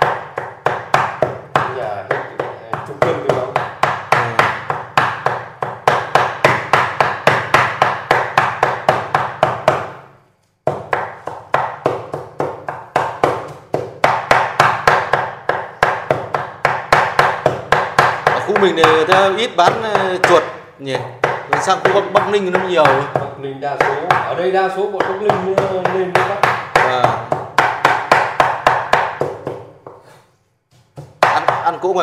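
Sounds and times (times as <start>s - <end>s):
cleaver chopping on board: 30.8s - 31.6s.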